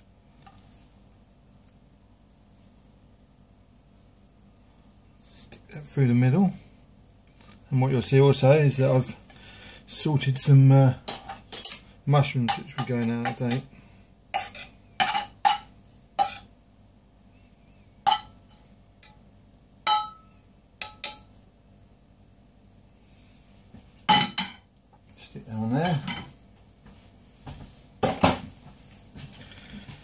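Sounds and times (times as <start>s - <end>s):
knife scraping frying pan: 14.4s - 15.6s, 16.2s - 16.5s
frying pan clatter: 18.1s - 19.2s.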